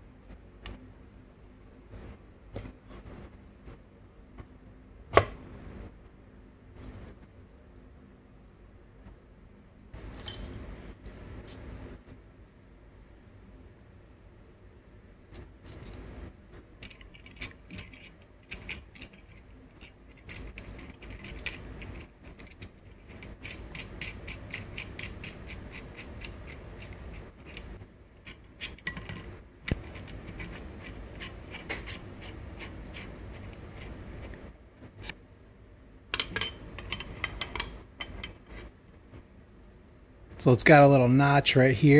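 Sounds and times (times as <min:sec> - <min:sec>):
metal clicks and scrapes: 0:16.8 - 0:35.2.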